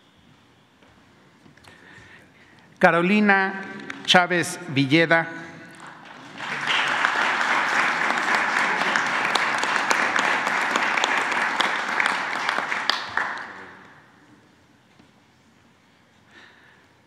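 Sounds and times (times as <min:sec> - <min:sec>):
audience applauding: 0:03.3 - 0:04.6, 0:05.7 - 0:14.0.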